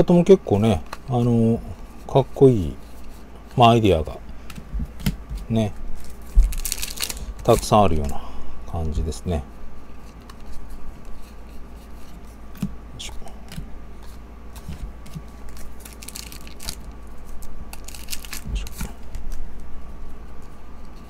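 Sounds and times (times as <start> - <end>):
foil wrapper tearing and crinkling: 6.0 - 8.0, 15.4 - 19.4.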